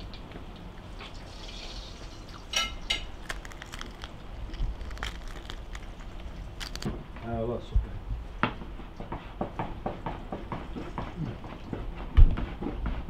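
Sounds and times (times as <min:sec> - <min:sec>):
crisp flatbread crunching: 0:02.5 - 0:07.0.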